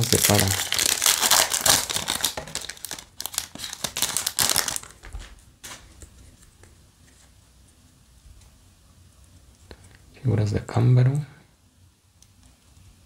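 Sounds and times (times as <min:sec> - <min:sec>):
foil wrapper crinkling: 0:00.0 - 0:06.1.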